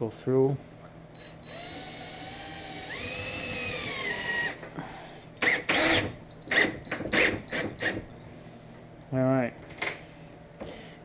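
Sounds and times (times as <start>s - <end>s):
cordless drill driving a screw: 1.2s - 4.6s, 5.4s - 8.0s.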